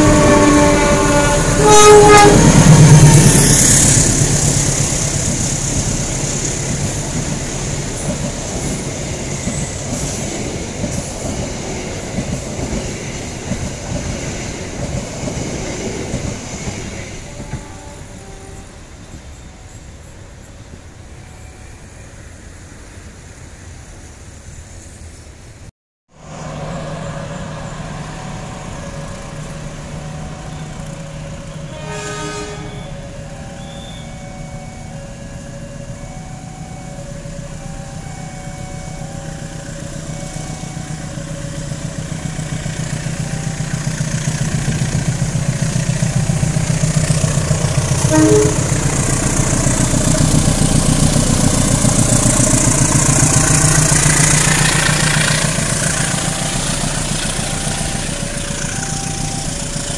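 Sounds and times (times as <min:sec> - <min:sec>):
train horn toot: 0:00.0 - 0:04.2, 0:17.2 - 0:18.9, 0:31.5 - 0:36.3, 0:46.0 - 0:51.1, 0:52.8 - 0:59.9
locomotive engine humming: 0:00.0 - 0:21.2, 0:26.2 - 0:59.9
repeating two-note signal: 0:56.2 - 0:59.9.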